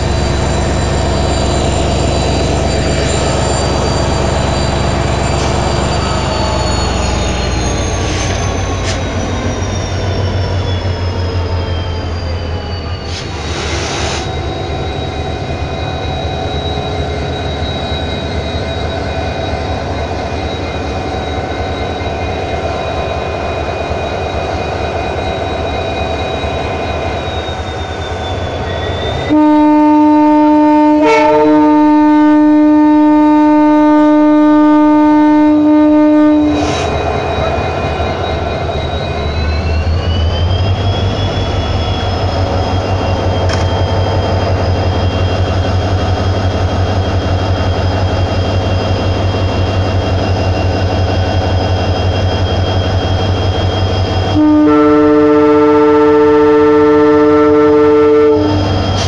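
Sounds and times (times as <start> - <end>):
locomotive horn blast: 29.3 - 37.0, 54.3 - 58.8.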